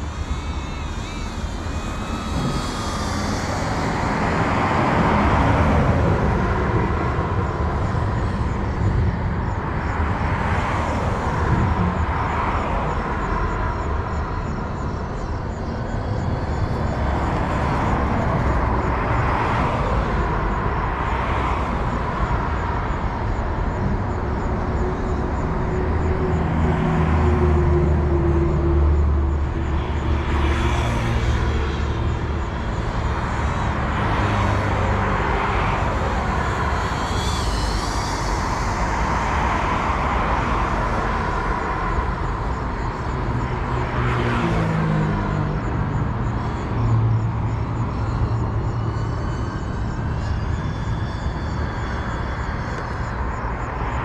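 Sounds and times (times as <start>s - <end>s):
outdoor rumble and hiss: 0.0s - 10.5s
drone motors buzzing: 0.0s - 19.5s, 29.3s - 43.0s.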